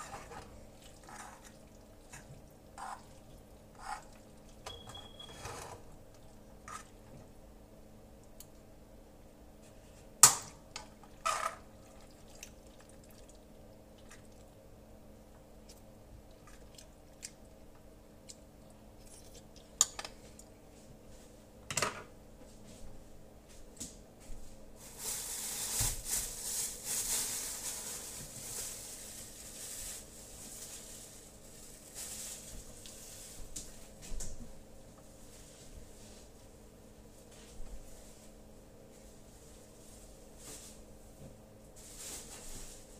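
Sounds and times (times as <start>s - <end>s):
faint steady hum: 0.0s - 42.9s
utensils and dishes clinking: 4.7s - 5.5s
rustling and scraping: 24.2s - 34.4s, 37.2s - 42.9s.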